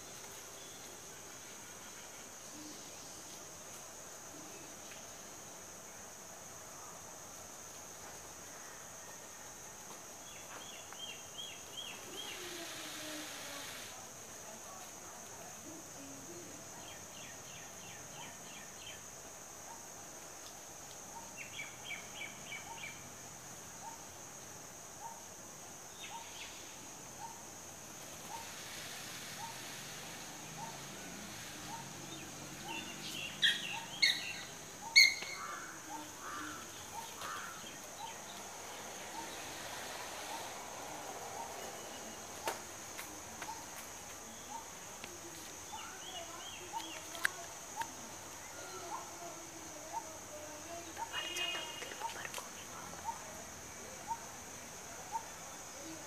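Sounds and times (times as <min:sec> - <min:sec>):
high insect drone: 0:00.0 - 0:56.0
small birds chirping: 0:26.0 - 0:27.4, 0:29.4 - 0:53.3
loud sharp bird calls: 0:31.7 - 0:38.2.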